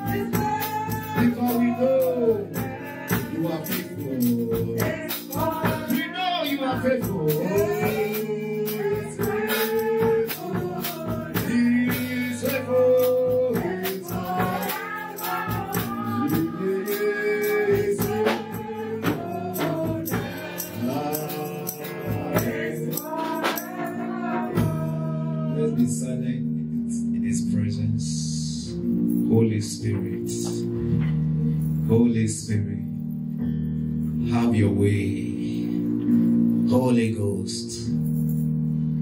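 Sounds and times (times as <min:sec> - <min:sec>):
tambourine shaking: 0:00.0 - 0:25.3, 0:37.7 - 0:39.0
man singing gospel song: 0:00.0 - 0:30.7, 0:31.9 - 0:32.9, 0:34.2 - 0:35.8.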